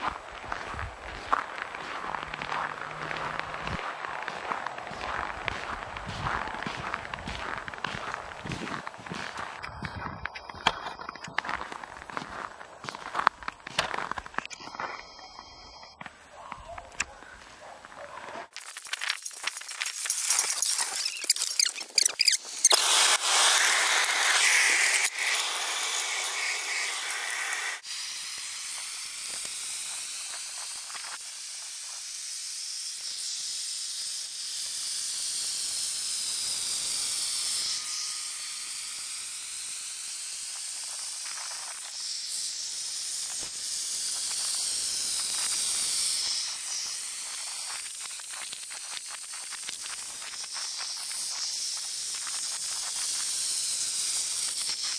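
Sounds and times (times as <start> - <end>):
burner hissing: 19.9 - 28.0, 43.3 - 54.9.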